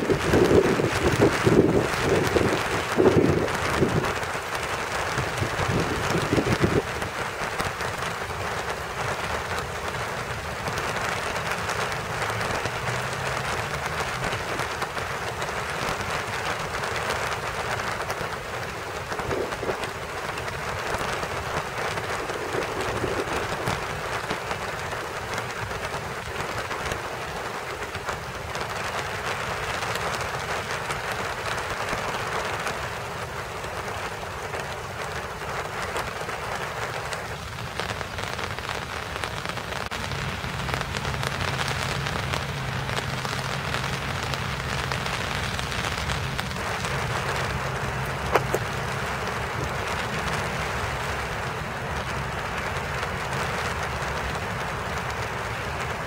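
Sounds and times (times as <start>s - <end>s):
wind buffeting microphone: 0.0s - 8.9s, 12.0s - 28.4s
rain falling on leaves: 0.0s - 56.0s
low rumble: 20.9s - 24.4s.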